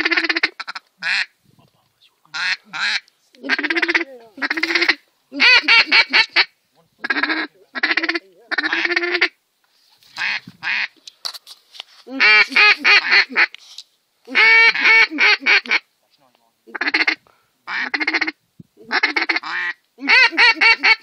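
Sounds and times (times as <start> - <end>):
duck call quacking: 0.0 - 1.3, 2.3 - 9.4, 10.2 - 10.9, 12.1 - 13.5, 14.3 - 15.9, 16.7 - 21.0.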